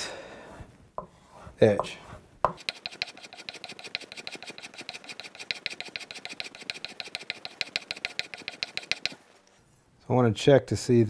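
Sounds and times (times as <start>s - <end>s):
blade rasping on leather strop: 1.8s - 9.2s.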